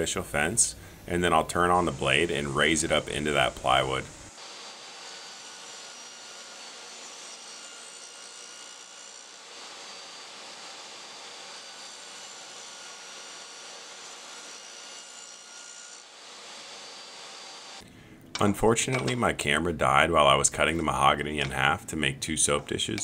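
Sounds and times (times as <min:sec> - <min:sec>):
table saw motor whine: 0:02.0 - 0:17.8
saw ripping wood: 0:03.4 - 0:17.8.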